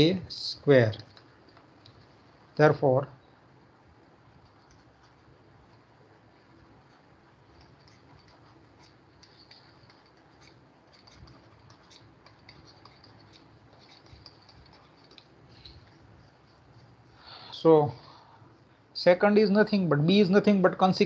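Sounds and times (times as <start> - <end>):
stylus scratching on tablet: 4.2 - 17.7.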